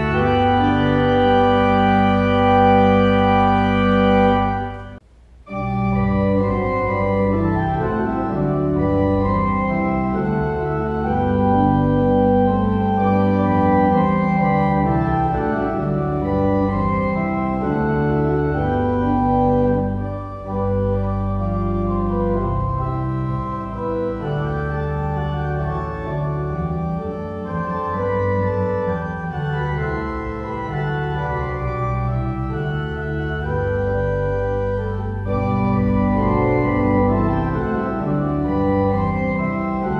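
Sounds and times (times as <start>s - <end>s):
organ music: 0.0s - 39.9s.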